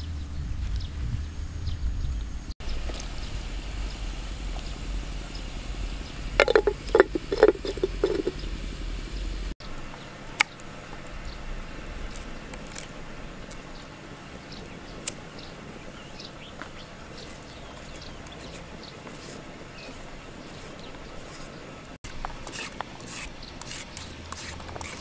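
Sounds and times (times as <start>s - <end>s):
quiet outdoor background: 0.0s - 25.0s
faint knife scraping: 6.4s - 8.4s, 17.2s - 25.0s
knife tapping on wooden board: 6.4s - 8.4s.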